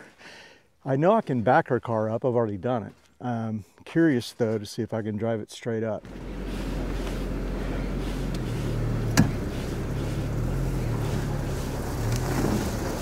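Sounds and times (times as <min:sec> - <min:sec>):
car engine droning: 0:06.0 - 0:13.0.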